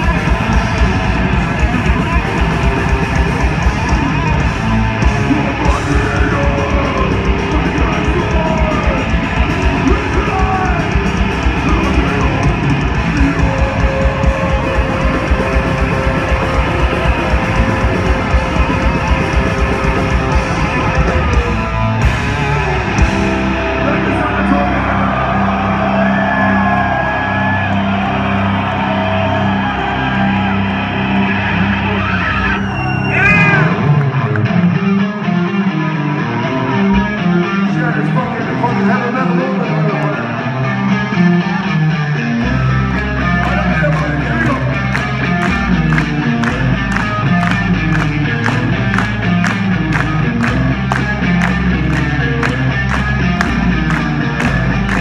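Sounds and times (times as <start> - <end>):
fast pounding drums: 0.0 - 25.3, 43.4 - 55.0
distorted electric guitars: 0.0 - 55.0
wavering lead guitar melody: 0.0 - 55.0.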